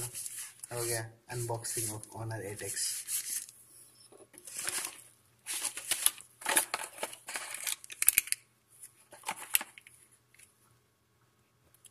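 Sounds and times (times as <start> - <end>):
cardboard packaging rustling: 4.4 - 8.2, 8.8 - 10.0.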